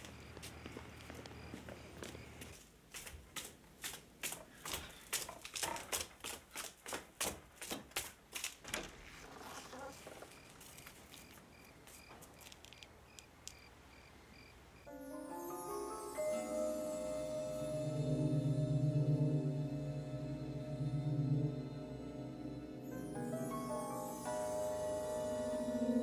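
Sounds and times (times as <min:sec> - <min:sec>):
footsteps hurrying up stairs: 0:00.0 - 0:09.3.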